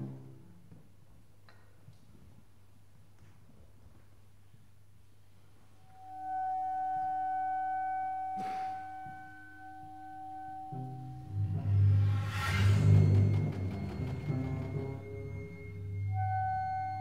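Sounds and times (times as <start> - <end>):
high held note: 5.9 - 17.0
low drum notes: 11.2 - 16.2.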